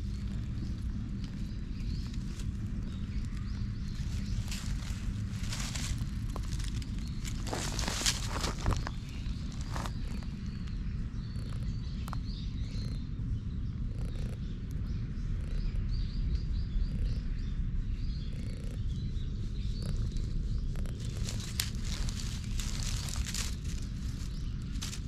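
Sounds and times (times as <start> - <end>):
cat purring: 13.8 - 14.6.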